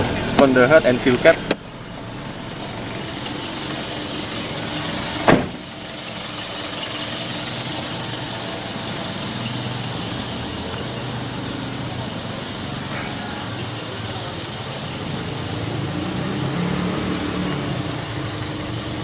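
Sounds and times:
car door shutting: 5.2s - 5.7s.

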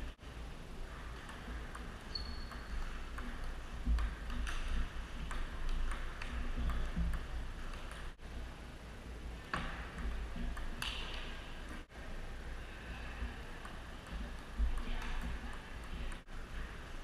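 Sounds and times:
table tennis ball ticking: 1.2s - 8.1s.

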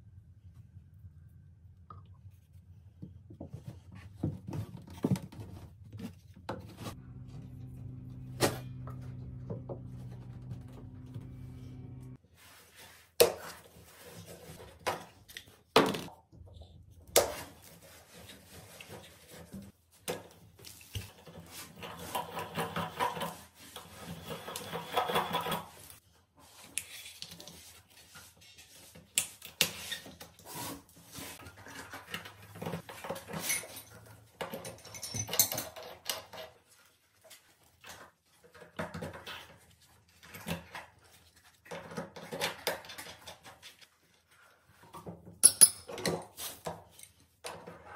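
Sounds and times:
rubbing and scraping: 3.5s - 14.8s.

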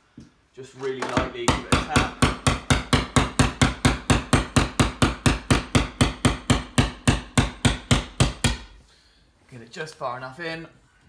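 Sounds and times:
hammer tapping chisel into drywall: 1.1s - 8.7s.

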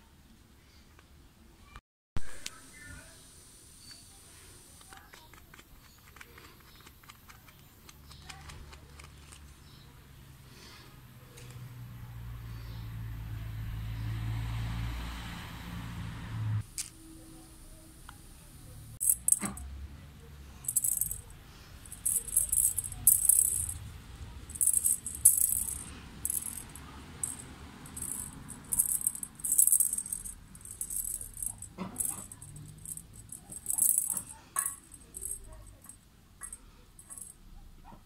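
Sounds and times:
rattle ball jingling: 19.0s - 19.6s, 20.6s - 37.4s.

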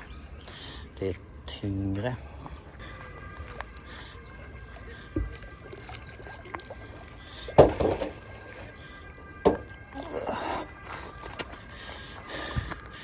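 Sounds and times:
water dripping: 2.4s - 10.3s.

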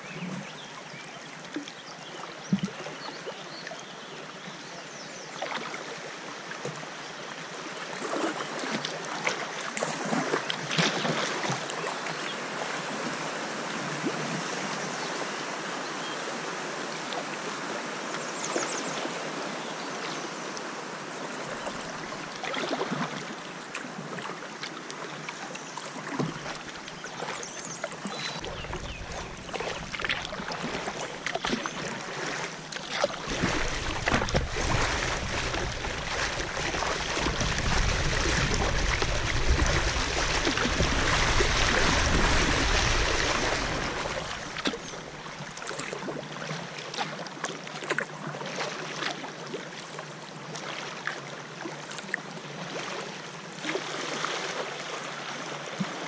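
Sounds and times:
water splashing against kayak hull: 21.5s - 49.9s.

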